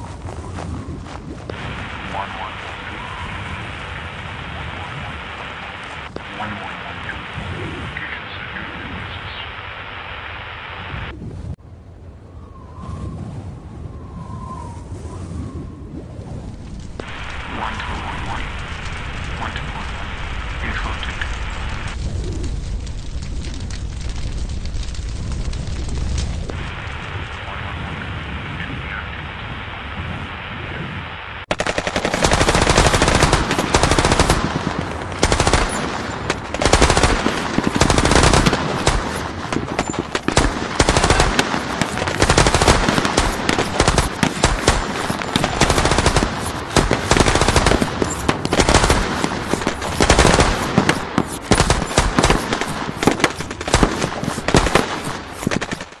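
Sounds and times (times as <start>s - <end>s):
muffled low rumble: 0.0s - 11.6s, 15.4s - 31.2s
automatic rifle gunfire: 31.5s - 56.0s.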